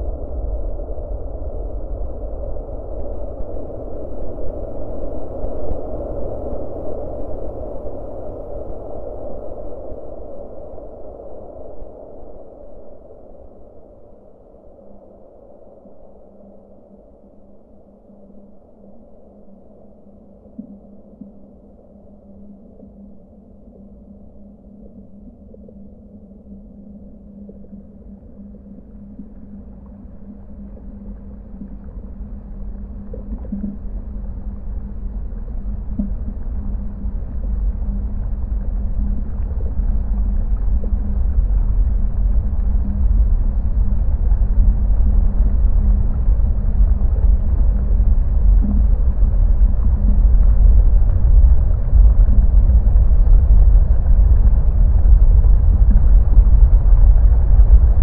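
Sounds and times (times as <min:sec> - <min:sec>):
low hum: 0:00.0 - 0:58.0
low rumbling drone: 0:19.5 - 0:58.0.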